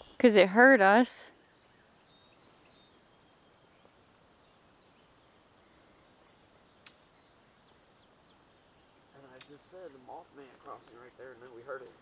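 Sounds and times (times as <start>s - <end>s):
faint bird chirps: 1.3s - 10.2s
sharp click: 6.8s - 7.0s, 9.4s - 9.6s.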